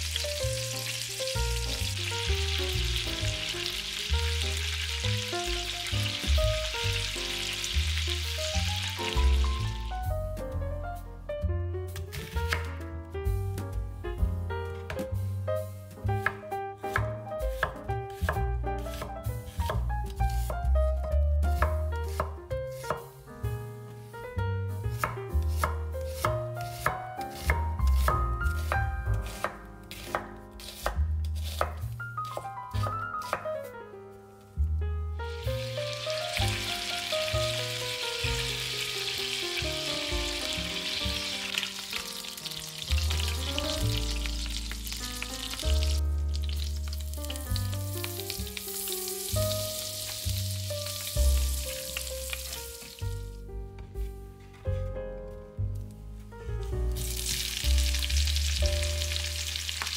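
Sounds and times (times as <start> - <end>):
food sizzling in a pan: 0.0 - 9.9, 35.3 - 53.1, 57.0 - 59.9
background music: 0.0 - 59.9
knife chopping on cutting board: 12.0 - 12.8, 16.2 - 20.6, 21.5 - 23.1, 25.0 - 33.6.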